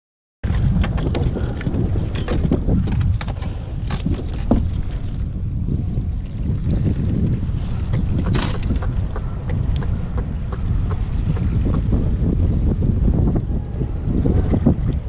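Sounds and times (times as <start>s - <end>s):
gear clicking on plastic kayak: 0.4s - 5.8s, 7.8s - 11.8s
wind buffeting microphone: 0.4s - 15.0s.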